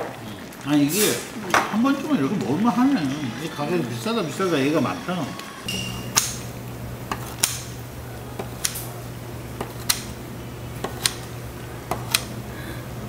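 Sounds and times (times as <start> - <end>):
scissors snipping: 7.1 - 7.7, 8.4 - 8.9, 9.6 - 10.1, 10.8 - 11.3, 11.9 - 12.3.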